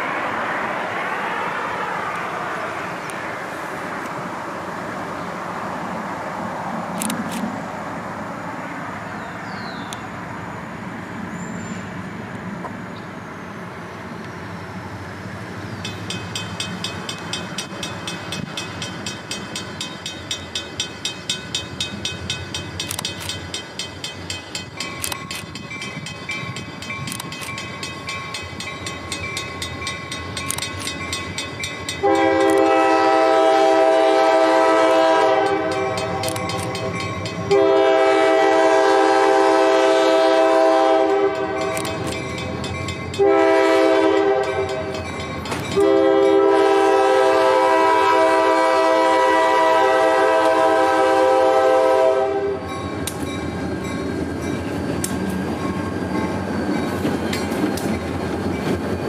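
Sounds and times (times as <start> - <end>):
train wheels on rails: 0.0 - 59.0
crossing bell dinging: 15.8 - 32.8, 35.4 - 37.7, 41.1 - 46.6, 52.6 - 58.8
locomotive air horn: 32.0 - 41.9, 43.2 - 44.9, 45.8 - 52.7.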